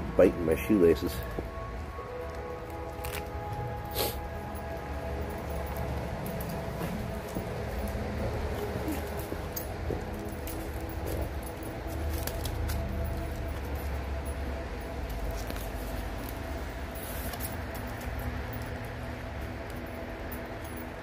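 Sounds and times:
small clicks and jingles: 4.5 - 21.0.

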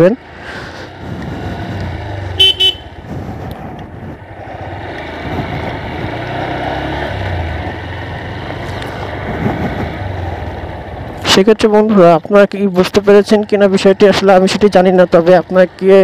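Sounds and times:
road noise: 0.0 - 16.0
motorcycle engine running: 0.9 - 12.0
horn beeps: 2.4 - 3.0.

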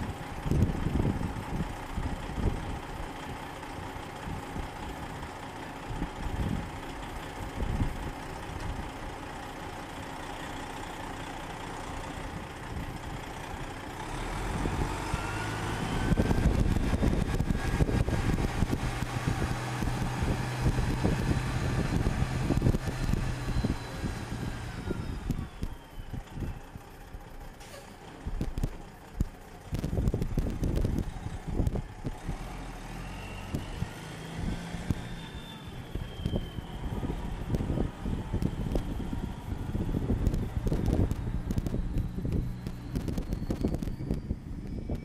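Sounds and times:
diesel truck engine: 0.0 - 45.0.

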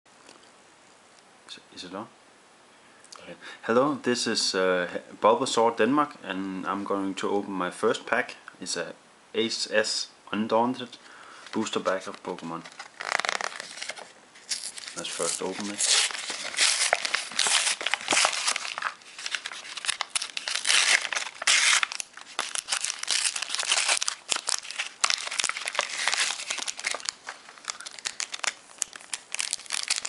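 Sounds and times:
foil wrapper tearing and crinkling: 12.6 - 30.0.

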